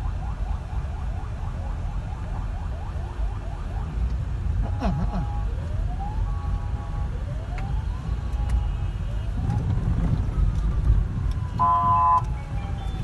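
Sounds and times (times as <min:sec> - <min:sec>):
road traffic rumbling: 0:02.2 - 0:13.0
siren wailing: 0:10.2 - 0:13.0
vehicle horn honk: 0:11.6 - 0:12.3.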